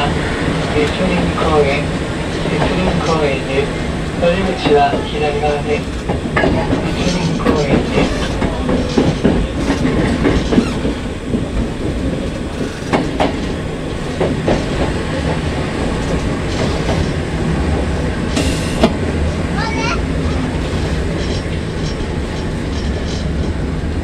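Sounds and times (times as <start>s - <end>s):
train low rumble: 0.0s - 24.0s
wheels clicking over rail joints: 4.6s - 17.3s.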